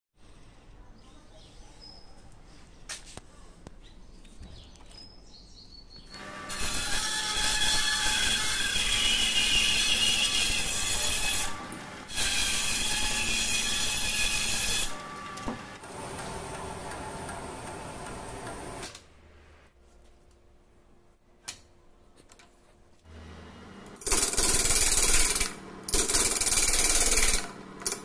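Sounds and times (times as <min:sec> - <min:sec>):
band saw cutting wood: 0:06.2 - 0:18.8, 0:23.1 - 0:28.0.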